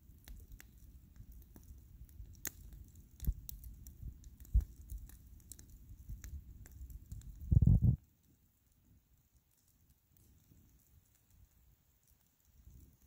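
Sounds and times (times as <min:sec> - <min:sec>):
bonfire crackling and popping: 0:00.0 - 0:13.0
low buffeting burst: 0:07.5 - 0:08.0
low rumble: 0:07.5 - 0:08.0.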